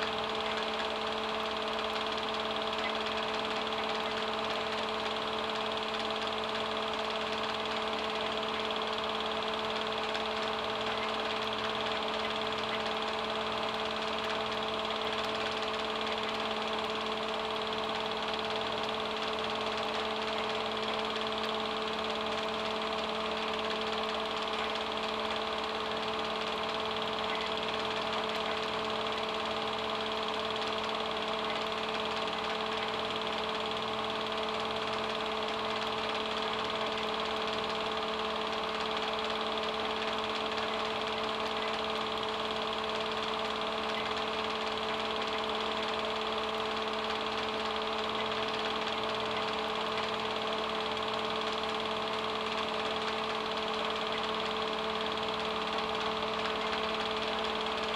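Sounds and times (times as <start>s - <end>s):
projector mechanical clatter: 0.0s - 57.9s
projector motor hum: 0.0s - 57.9s.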